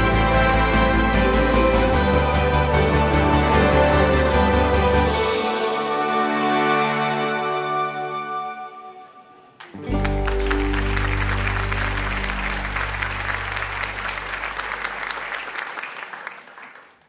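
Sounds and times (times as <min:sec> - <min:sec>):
background music: 0:00.0 - 0:15.7
small group clapping: 0:09.5 - 0:17.0.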